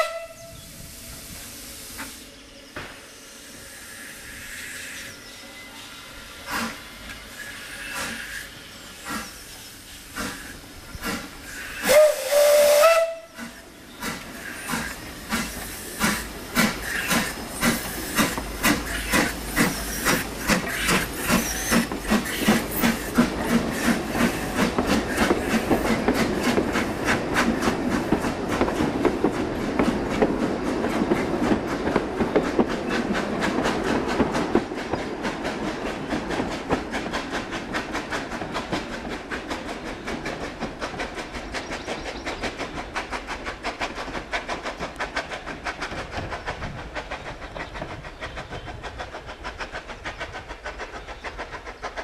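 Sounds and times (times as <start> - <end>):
steam locomotive whistle: 0.0 - 2.3, 11.5 - 13.7
hiss of steam: 0.4 - 31.3, 32.4 - 52.0.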